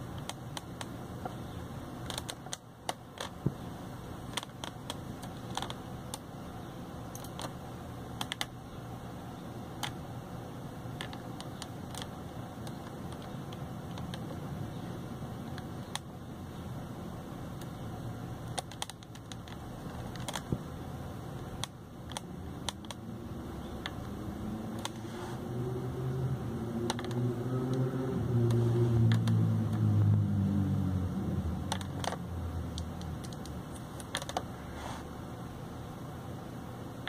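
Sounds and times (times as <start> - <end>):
low drone: 22.4 - 33.0.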